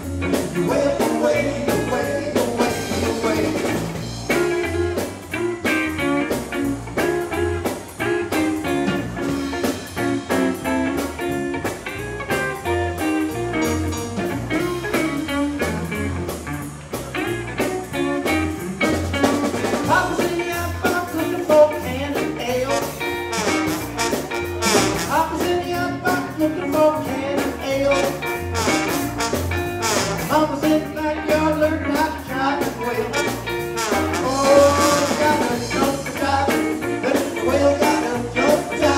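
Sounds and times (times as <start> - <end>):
live blues band playing: 0.0 - 38.9
trombone: 22.4 - 25.5, 27.6 - 30.6, 32.9 - 35.9.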